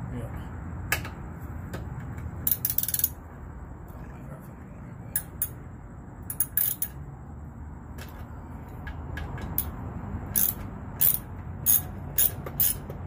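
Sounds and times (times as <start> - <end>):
ratchet wrench clicking: 2.4 - 3.2, 6.2 - 7.0, 9.4 - 13.0.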